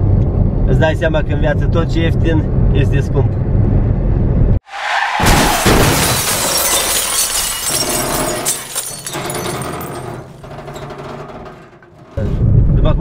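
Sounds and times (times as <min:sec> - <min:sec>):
traffic rushing heard from car: 0:00.0 - 0:06.2.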